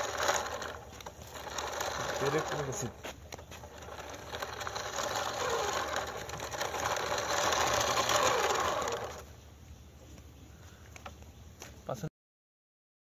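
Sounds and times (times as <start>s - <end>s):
toy car electric motor whirring: 0.0s - 9.3s.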